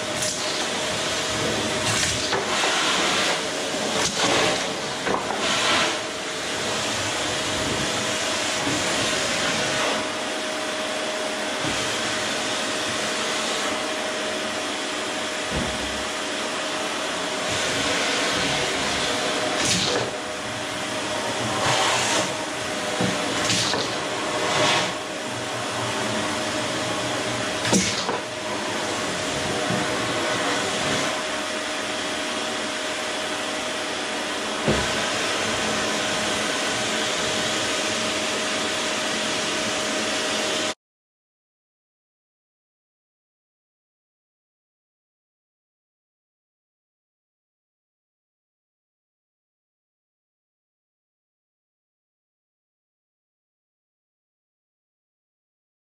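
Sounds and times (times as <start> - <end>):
vacuum cleaner running: 0.0 - 40.8.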